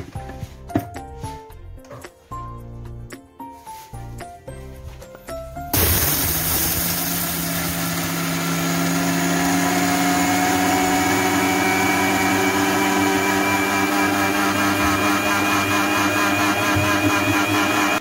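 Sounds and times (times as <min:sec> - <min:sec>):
mixer grinder motor whine: 0:05.8 - 0:18.0.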